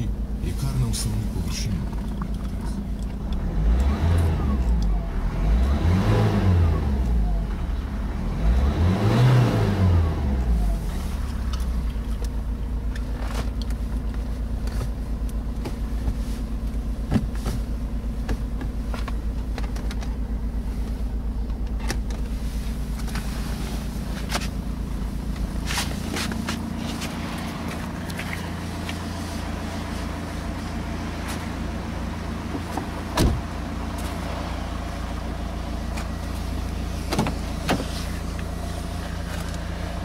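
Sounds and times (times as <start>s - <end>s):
diesel engine revving and idling: 0.0s - 40.0s.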